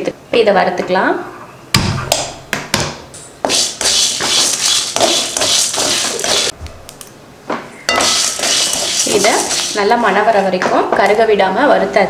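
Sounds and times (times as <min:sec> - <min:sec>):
spatula scraping spices in pan: 0:03.4 - 0:06.6, 0:07.9 - 0:10.6.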